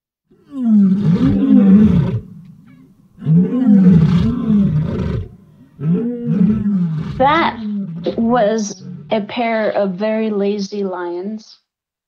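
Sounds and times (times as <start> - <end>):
lions roaring: 0.4 - 9.8.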